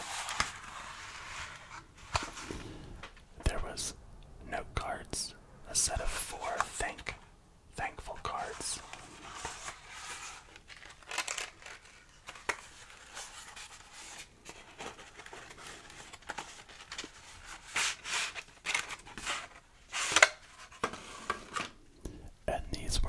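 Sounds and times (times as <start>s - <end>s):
paper cards rustling and scraping: 0.0s - 3.1s, 6.1s - 7.2s, 7.9s - 21.8s.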